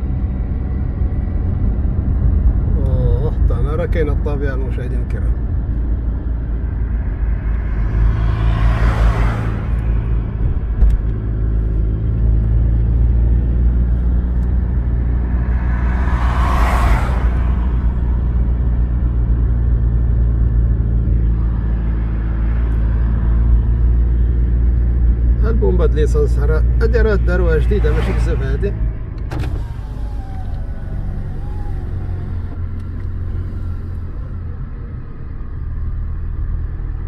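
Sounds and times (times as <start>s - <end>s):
car engine and road noise: 0.0s - 37.0s
passing traffic whooshes: 5.1s - 34.0s.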